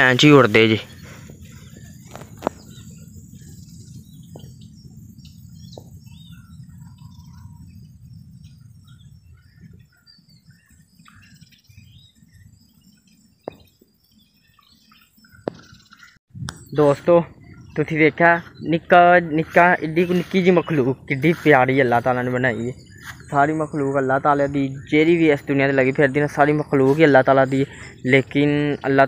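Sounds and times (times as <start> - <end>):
small birds chirping: 0.0 - 29.0
low rumble: 0.8 - 10.7.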